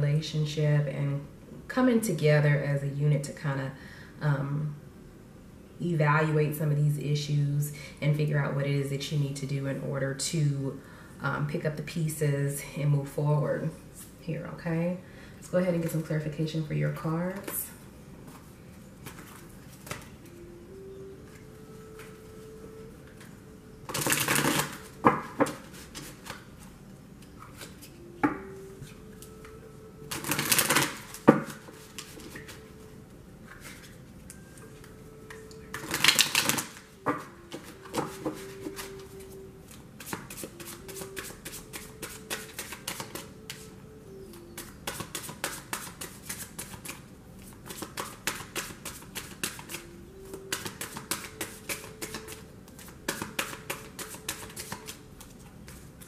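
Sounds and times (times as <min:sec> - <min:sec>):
cards shuffling: 0:18.3 - 0:20.1, 0:23.9 - 0:26.5, 0:30.1 - 0:32.7, 0:35.7 - 0:36.8, 0:37.4 - 0:43.7, 0:44.6 - 0:56.0.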